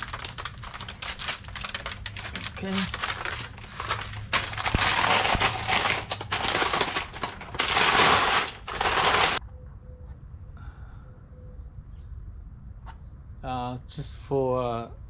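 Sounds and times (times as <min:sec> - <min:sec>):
plastic bag crinkling: 0:00.0 - 0:09.4.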